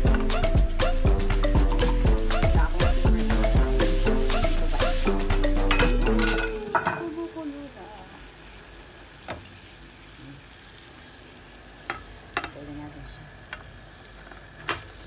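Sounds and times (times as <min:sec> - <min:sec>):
background music: 0:00.0 - 0:06.8
steamer hissing: 0:02.3 - 0:05.4.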